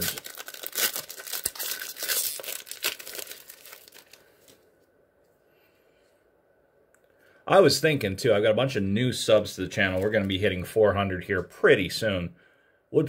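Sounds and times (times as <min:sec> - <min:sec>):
foil wrapper crinkling and tearing: 0:00.0 - 0:04.6, 0:09.8 - 0:10.5.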